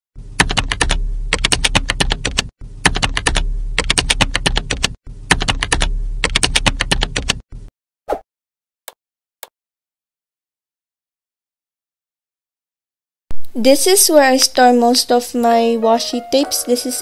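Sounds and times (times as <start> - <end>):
low hum: 0.2 - 1.7, 2.6 - 4.4, 5.1 - 7.7
computer keyboard typing: 0.4 - 7.4.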